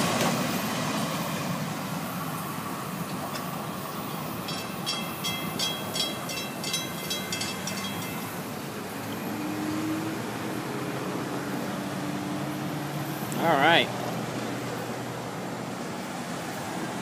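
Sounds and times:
train rumble: 0.0 - 9.2
faint vehicle engine hum: 0.0 - 17.0
road traffic: 0.0 - 17.0
crossing bell ringing: 3.3 - 8.7.

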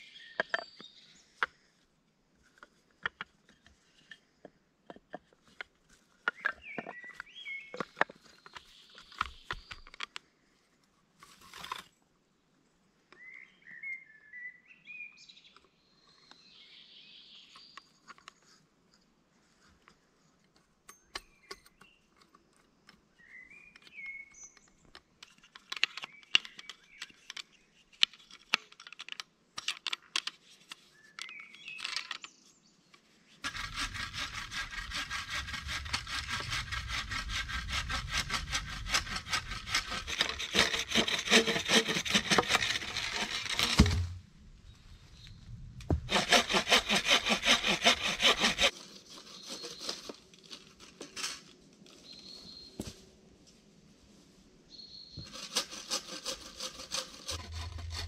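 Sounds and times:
hand saw cutting wood: 33.4 - 44.2, 45.9 - 50.2, 55.2 - 58.0.

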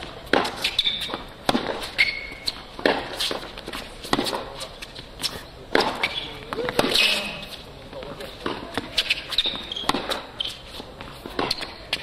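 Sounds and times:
tennis ball bouncing on hard court: 0.0 - 4.5, 5.7 - 7.3, 8.4 - 12.0
tennis ball struck by rackets: 0.0 - 4.6, 5.7 - 7.4, 8.4 - 10.4, 11.0 - 12.0
shoe squeak: 0.5 - 1.2, 1.8 - 3.4, 5.2 - 7.6, 8.9 - 12.0.

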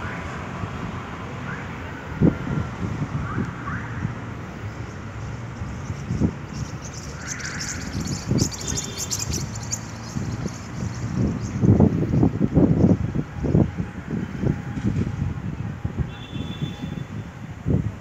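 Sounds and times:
wind buffeting microphone: 2.1 - 18.0
high crackling hiss: 4.7 - 12.1
bird chirps: 4.8 - 12.3.

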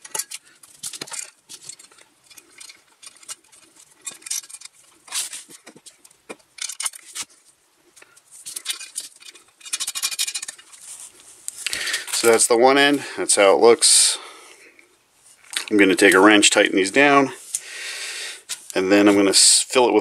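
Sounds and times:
metal hardware clinking and scraping: 0.0 - 7.4, 8.4 - 13.0.

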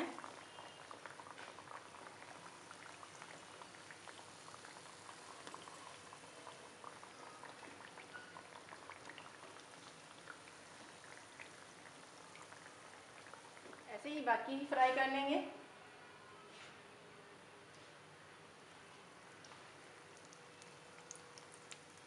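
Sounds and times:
hot oil sizzling and crackling: 0.0 - 14.8, 20.0 - 22.0.

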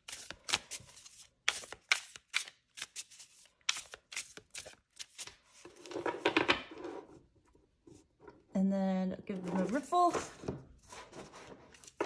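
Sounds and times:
cards shuffling: 0.0 - 6.0.

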